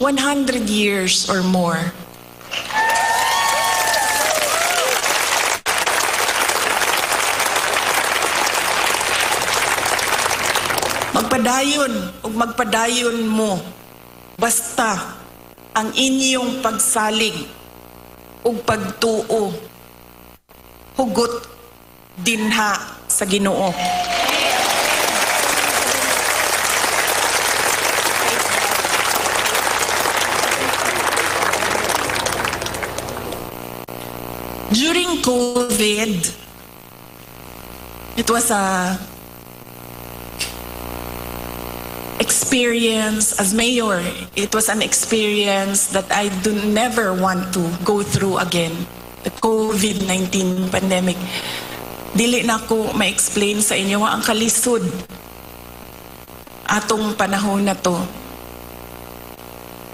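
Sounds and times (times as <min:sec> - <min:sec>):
crowd cheering: 0:02.4 - 0:11.1, 0:23.7 - 0:33.5
crowd applauding: 0:02.4 - 0:11.2, 0:23.8 - 0:33.6.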